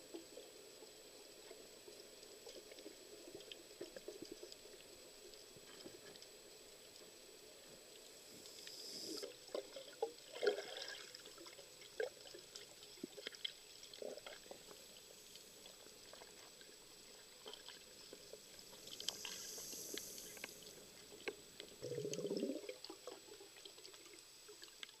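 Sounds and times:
scattered clicks and crackles: 0:00.1 - 0:10.2, 0:12.4 - 0:25.0
diver breathing in with a hiss: 0:08.3 - 0:09.4, 0:18.6 - 0:20.8
exhaled bubbles burbling: 0:09.6 - 0:13.2, 0:21.8 - 0:23.9.

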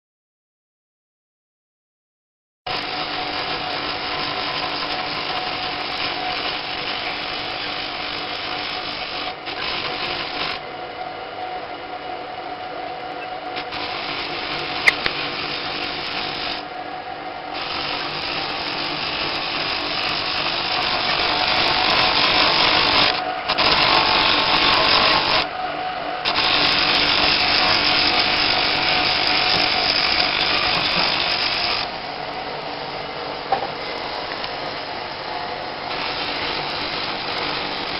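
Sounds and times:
power tool grinding stone: 0:02.7 - 0:10.6, 0:13.6 - 0:16.6, 0:17.6 - 0:25.5, 0:26.2 - 0:31.9, 0:35.9 - 0:37.9.

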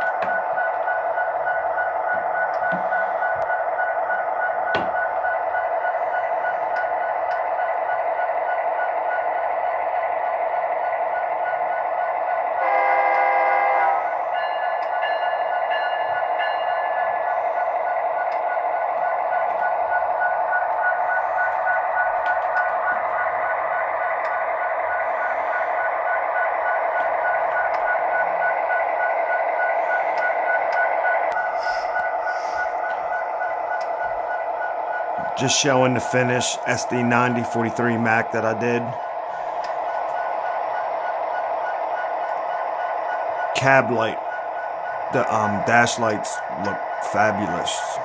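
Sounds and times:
locomotive horn blast: 0:12.6 - 0:14.2
model diesel engine through speaker: 0:19.4 - 0:48.0.

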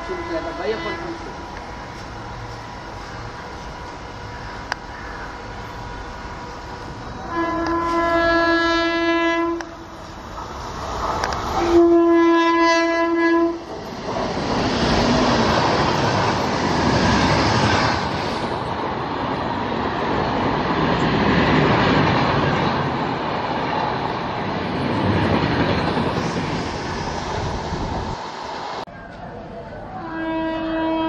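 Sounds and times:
train coaches rumbling past: 0:00.0 - 0:31.0
locomotive horn: 0:07.2 - 0:09.8, 0:11.6 - 0:13.6, 0:29.9 - 0:31.0.

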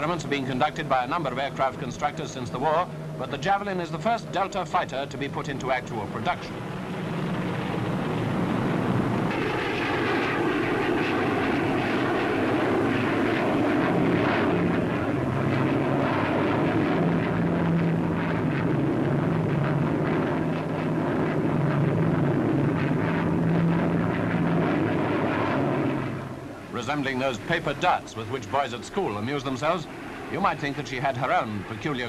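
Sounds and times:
jet engine roar: 0:00.0 - 0:32.0.

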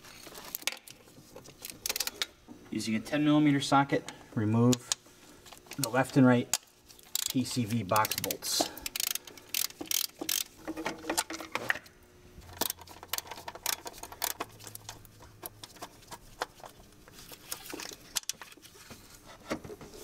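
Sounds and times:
socket wrench clicking: 0:08.0 - 0:10.5.

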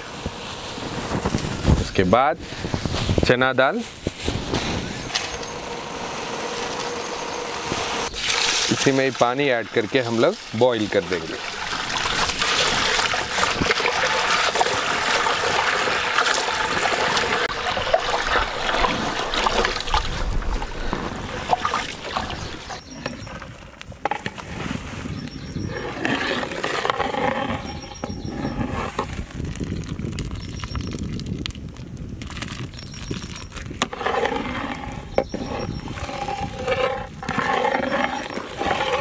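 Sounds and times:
hand churning lentils in water: 0:08.1 - 0:22.4, 0:33.2 - 0:39.0
water pouring onto lentils: 0:08.2 - 0:20.7.

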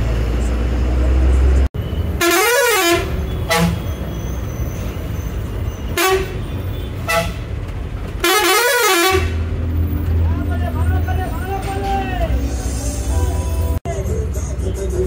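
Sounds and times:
engine and road rumble: 0:00.0 - 0:15.0
bus horn blasts: 0:02.2 - 0:04.1, 0:05.9 - 0:07.5, 0:08.2 - 0:09.5.

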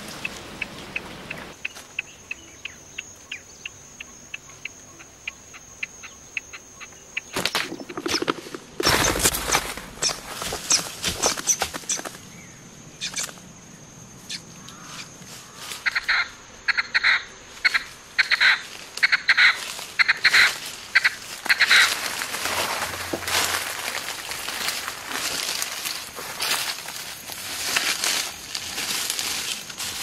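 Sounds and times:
leaves and undergrowth rustling: 0:00.0 - 0:02.4, 0:07.2 - 0:13.5, 0:14.3 - 0:30.0
bird squawking harshly: 0:15.8 - 0:22.0.

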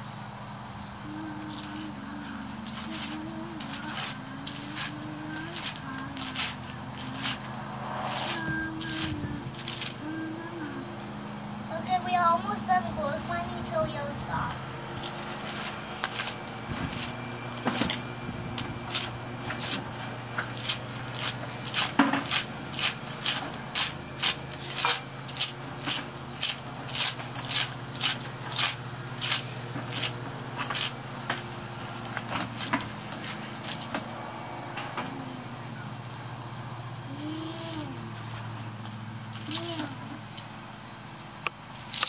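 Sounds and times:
insects chirping: 0:00.0 - 0:42.0
toy vehicle scraping through gravel: 0:02.8 - 0:10.0, 0:11.8 - 0:34.0.

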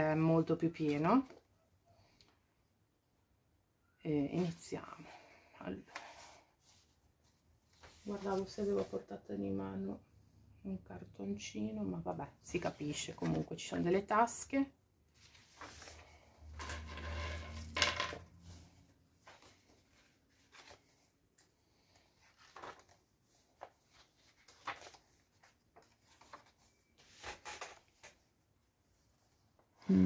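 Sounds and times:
paper pages rustling: 0:05.9 - 0:09.0, 0:12.6 - 0:13.8, 0:15.2 - 0:16.3, 0:19.2 - 0:28.3.

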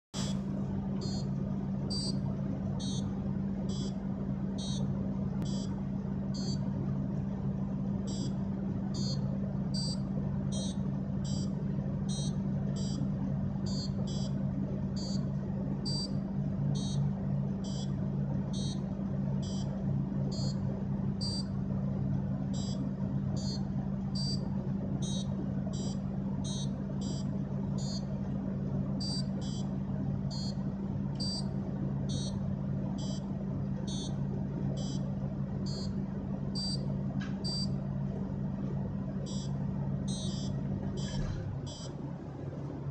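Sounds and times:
steady low hum: 0:00.0 - 0:42.9
high electronic buzzer beeps: 0:01.0 - 0:01.3, 0:01.9 - 0:02.2, 0:02.8 - 0:03.1, 0:03.7 - 0:04.0, 0:04.6 - 0:06.6, 0:08.1 - 0:14.4, 0:15.0 - 0:15.2, 0:15.8 - 0:17.9, 0:18.5 - 0:18.8, 0:19.4 - 0:19.7, 0:20.3 - 0:20.6, 0:21.2 - 0:21.5, 0:22.5 - 0:22.8, 0:23.4 - 0:23.6, 0:24.2 - 0:24.4, 0:25.0 - 0:28.1, 0:29.0 - 0:29.7, 0:30.3 - 0:30.6, 0:31.2 - 0:31.5, 0:32.1 - 0:32.4, 0:33.0 - 0:33.2, 0:33.9 - 0:34.2, 0:34.8 - 0:35.0, 0:35.6 - 0:36.0, 0:36.6 - 0:37.8, 0:39.2 - 0:39.5, 0:40.1 - 0:42.0.

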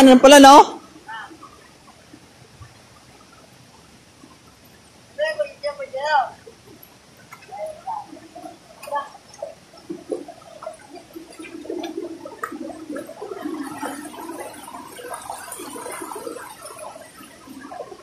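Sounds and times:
stream gurgling over rocks: 0:00.0 - 0:18.0.

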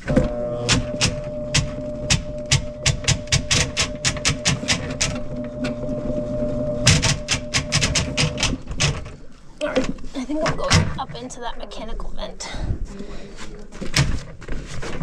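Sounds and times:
drain snake motor humming: 0:00.0 - 0:08.6.

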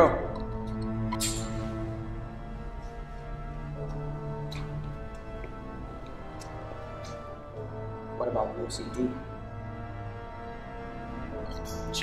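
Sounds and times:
film score low sustained notes: 0:00.0 - 0:12.0.

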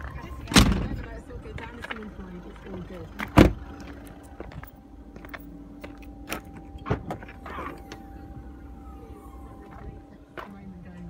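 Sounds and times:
car tailgate clicks and knocks: 0:06.2 - 0:08.0.

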